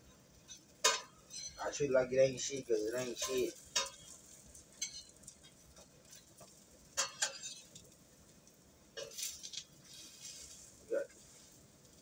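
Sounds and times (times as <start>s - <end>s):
utensil clinking against pot: 0.5s - 1.6s, 3.0s - 4.2s, 4.8s - 7.8s.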